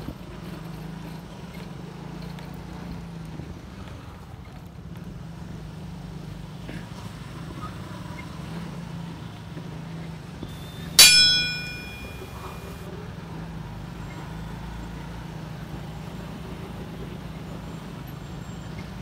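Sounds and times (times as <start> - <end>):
street traffic hum: 0.0 - 19.0
bell-like ding: 11.0 - 12.8.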